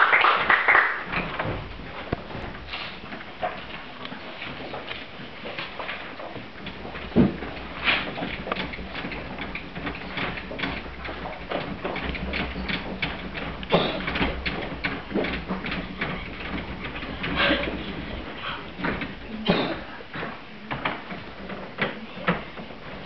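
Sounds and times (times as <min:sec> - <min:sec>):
bench mechanism clicks and knocks: 0:05.8 - 0:23.0
bench thumps: 0:06.3 - 0:23.0.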